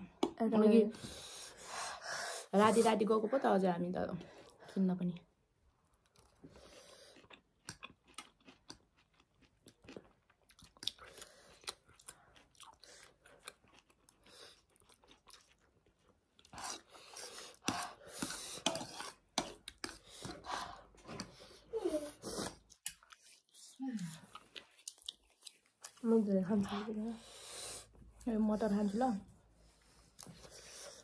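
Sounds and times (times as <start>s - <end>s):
chewing noodles with mouth clicks: 5.8s - 26.7s.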